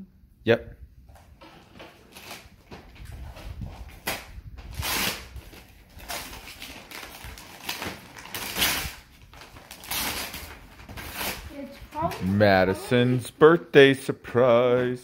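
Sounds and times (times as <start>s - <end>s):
wrapping paper tearing and rustling: 1.5s - 12.4s.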